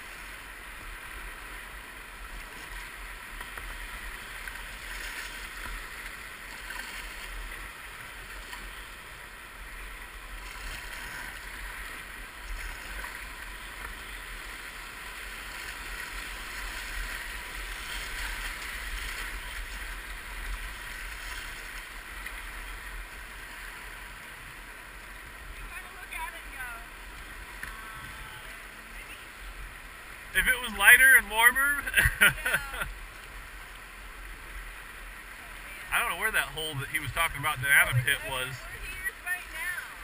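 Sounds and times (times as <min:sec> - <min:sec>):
whitewater rapids rushing: 0:30.0 - 0:40.0.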